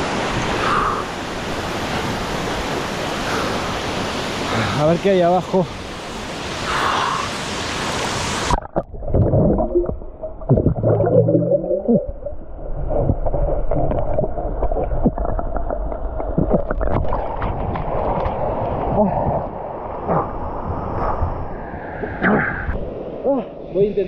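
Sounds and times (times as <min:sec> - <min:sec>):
waterfall rushing: 0:00.0 - 0:08.6
low hums: 0:08.5 - 0:23.4.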